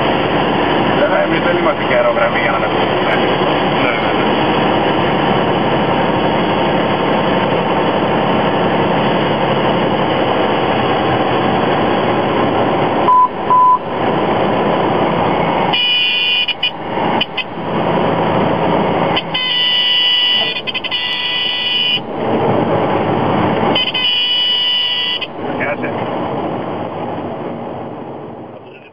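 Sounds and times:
aircraft engine and propeller: 0:00.0 - 0:13.1
short beeps: 0:13.1 - 0:13.8
stall warning horn: 0:15.7 - 0:17.5, 0:19.1 - 0:22.1, 0:23.7 - 0:25.4.

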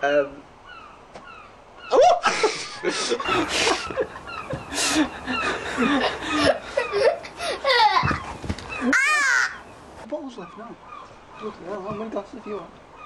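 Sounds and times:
people laughing: 0:02.0 - 0:09.0.

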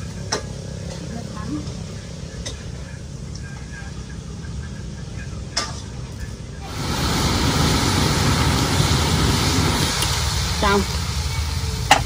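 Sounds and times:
shrimp sizzling in a wok: 0:06.6 - 0:12.0.

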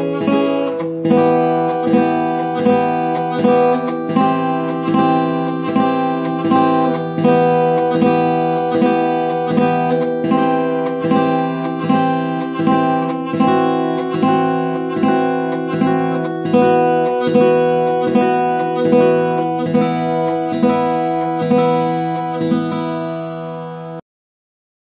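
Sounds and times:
acoustic guitar strumming: 0:00.0 - 0:24.0.

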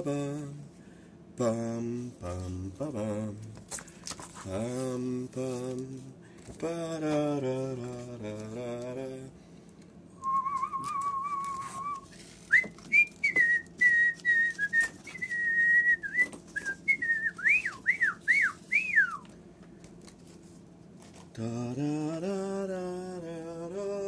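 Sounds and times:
person whistling birdsong: 0:10.2 - 0:19.3.

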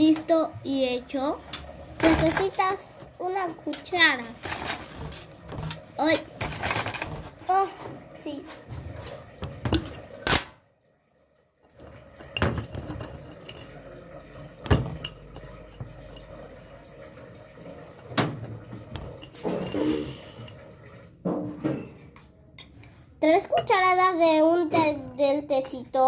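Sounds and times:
cutlery and dishes clinking: 0:01.5 - 0:02.7, 0:03.7 - 0:07.4, 0:11.8 - 0:13.8, 0:19.0 - 0:20.6.

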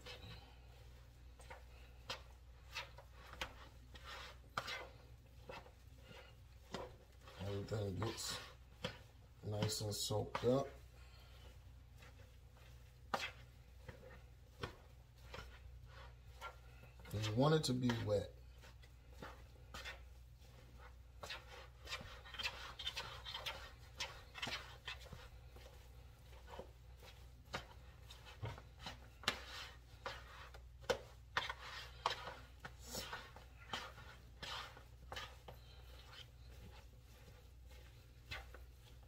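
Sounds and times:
spoon scraping a mixing bowl: 0:00.0 - 0:39.0.

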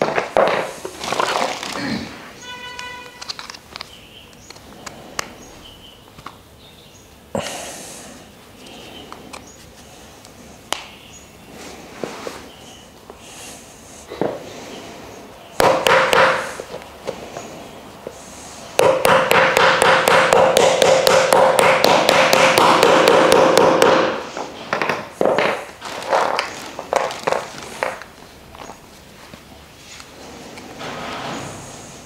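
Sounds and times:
hammer tapping wood: 0:15.6 - 0:16.8, 0:18.8 - 0:25.6.

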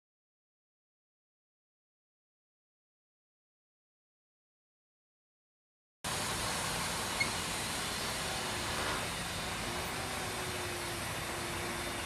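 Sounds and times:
diesel engine rumble: 0:06.1 - 0:12.0
even hiss: 0:06.1 - 0:12.0.

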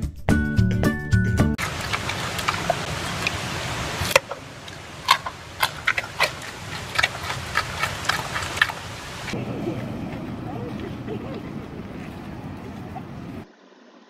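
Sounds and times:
panda crunching carrot: 0:01.6 - 0:09.4
steady hiss: 0:01.6 - 0:09.4.

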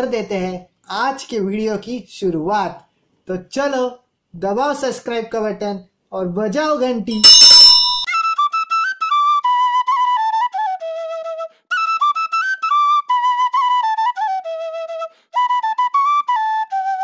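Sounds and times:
solo flute melody: 0:08.1 - 0:17.0.

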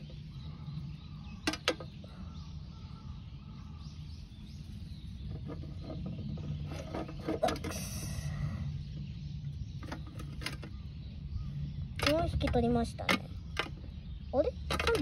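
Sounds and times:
plastic scraping: 0:05.3 - 0:07.9
plastic cage clicks and rattles: 0:14.6 - 0:15.0.

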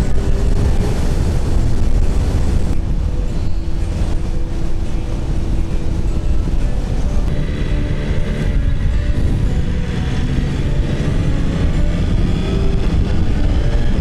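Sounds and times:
road and wind noise: 0:00.0 - 0:14.0
motorcycle engine running: 0:07.2 - 0:14.0.

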